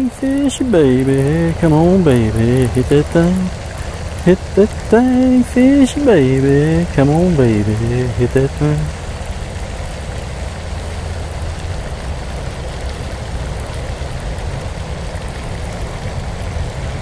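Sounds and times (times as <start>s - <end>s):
even hiss: 0.0s - 17.0s
steady low rumble: 0.0s - 17.0s.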